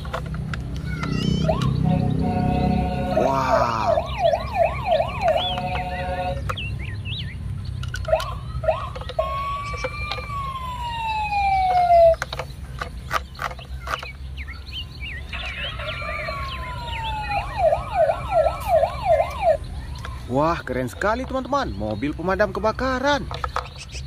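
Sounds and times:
toy electronic siren: 1.0s - 6.5s, 8.0s - 12.2s, 15.4s - 20.1s.

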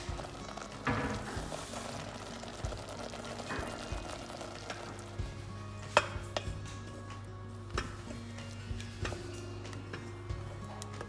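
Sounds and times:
sauce bubbling in a pan: 0.0s - 6.0s
background music: 0.0s - 11.0s.

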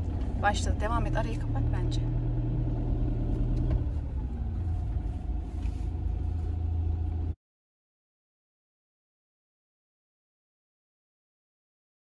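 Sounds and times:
engine and road rumble: 0.0s - 7.4s.

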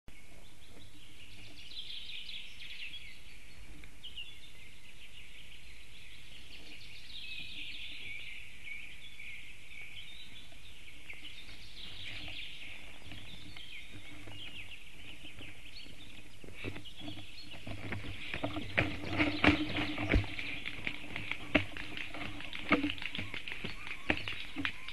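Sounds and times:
small birds singing: 0.1s - 24.9s
clicks and rustles of bird landing: 16.6s - 24.9s.

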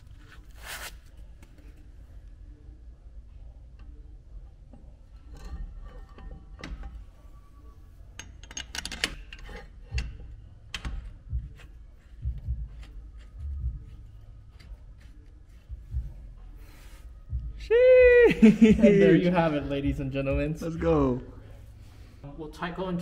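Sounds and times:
metallic clicks and knocks: 8.2s - 13.3s.

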